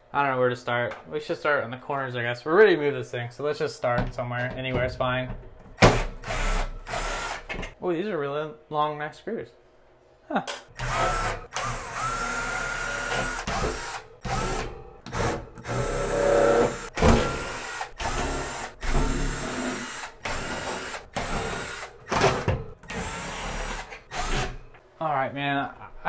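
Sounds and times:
cordless drill motor whining: 10.8 - 14.7, 15.6 - 21.9.

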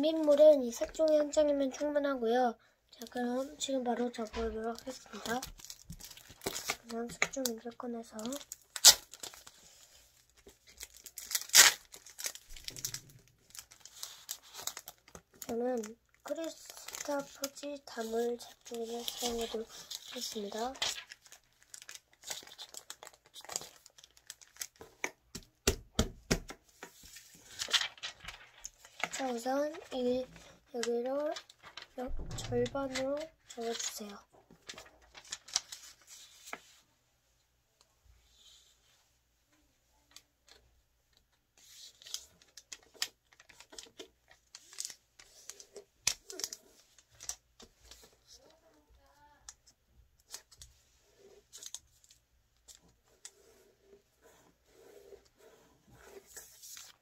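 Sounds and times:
plastic pack crinkling: 4.1 - 9.6, 10.3 - 25.1, 27.5 - 30.0, 33.0 - 36.0, 42.0 - 48.5.

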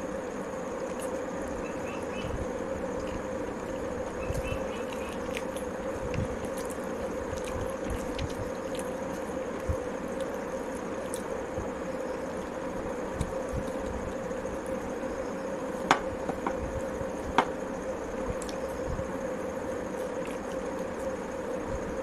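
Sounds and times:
background hum: 0.0 - 22.0
mouth chewing: 4.2 - 11.4.

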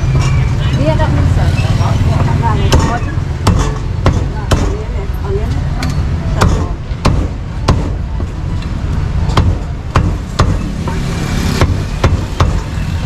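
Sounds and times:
traffic rumble: 0.0 - 13.0
cleaver chopping meat: 6.4 - 8.0, 9.4 - 12.8.

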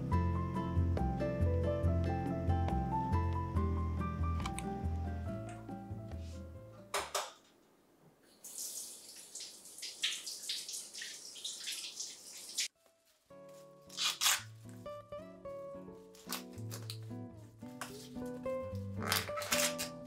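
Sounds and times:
background music: 0.0 - 6.9, 13.3 - 20.0
tap water splashing in sink: 8.4 - 12.7
corn husks tearing: 13.9 - 14.5, 16.2 - 17.0, 18.9 - 20.0.

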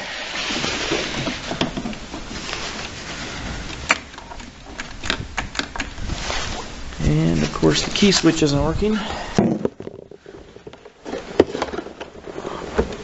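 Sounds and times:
steady hiss: 0.0 - 9.4.

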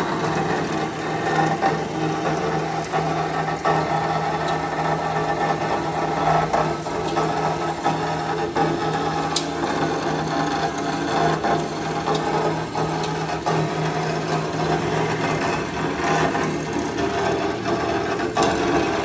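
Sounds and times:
motor hum: 0.0 - 19.0.

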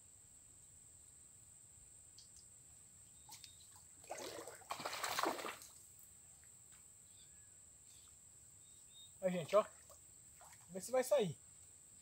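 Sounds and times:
water splashing: 3.7 - 5.8, 9.4 - 10.9.

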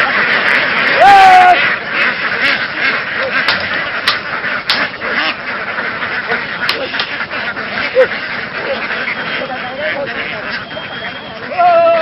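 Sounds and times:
ducks quacking: 0.0 - 12.0
sharp clicks: 3.4 - 4.9.

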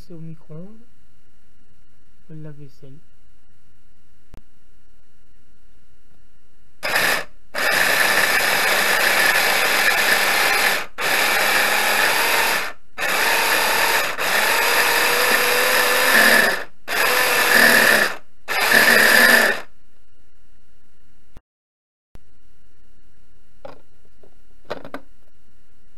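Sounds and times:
food chopper motor running: 6.8 - 19.7.

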